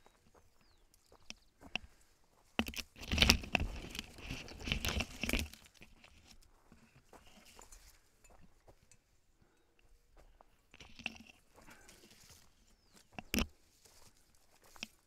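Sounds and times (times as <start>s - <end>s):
light footsteps on dirt trail: 0.0s - 15.0s
leaves and twigs scraping camera: 2.6s - 8.0s, 10.7s - 15.0s.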